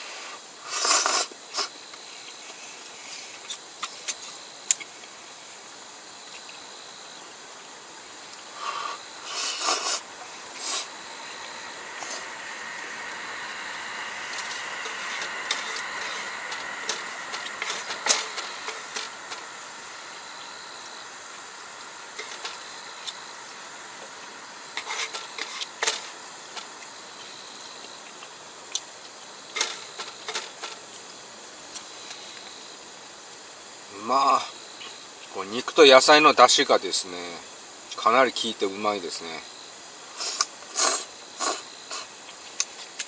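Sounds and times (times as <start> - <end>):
camp stove burner hissing: 0.0 - 43.0.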